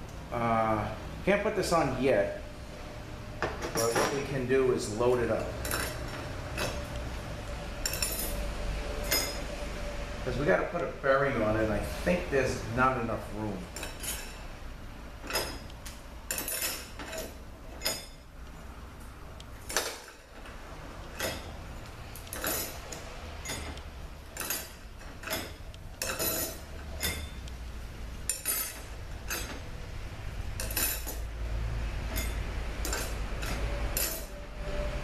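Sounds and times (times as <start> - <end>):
metal clutch plates clinking: 3.5 - 9.6, 13.7 - 14.6, 15.2 - 31.4, 32.0 - 34.4.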